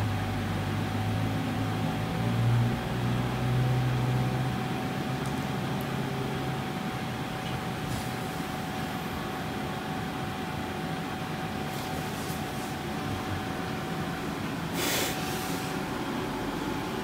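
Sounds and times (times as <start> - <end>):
mechanical hum and hiss: 0.0 - 17.0
thin constant whine: 0.0 - 17.0.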